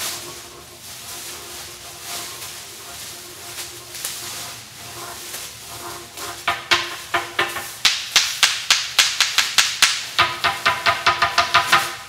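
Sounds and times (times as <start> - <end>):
ceramic percussion strikes: 6.5 - 12.0.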